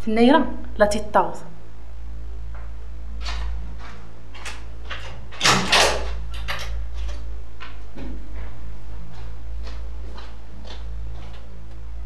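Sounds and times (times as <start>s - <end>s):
steady low drone: 6.0s - 12.0s.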